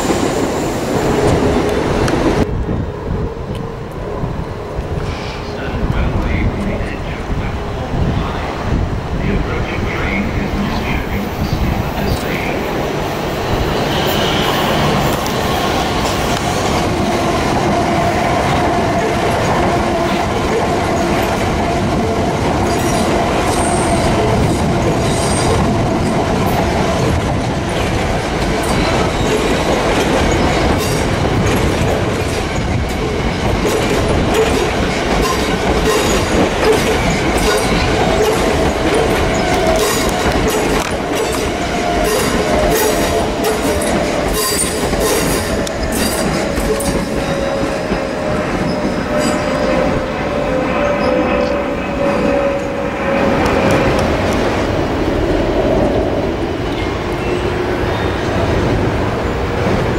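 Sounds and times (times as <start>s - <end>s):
train rumbling past: 0.0s - 59.9s
high-pitched wheel squeal: 43.8s - 53.8s.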